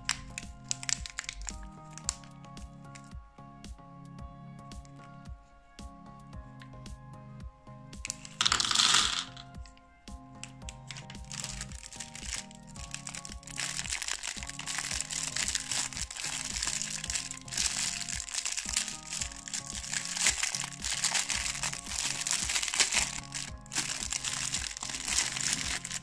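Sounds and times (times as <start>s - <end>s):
background music: 0.0s - 26.0s
plastic wrapper crinkling: 0.1s - 2.2s, 8.1s - 9.4s, 10.7s - 26.0s.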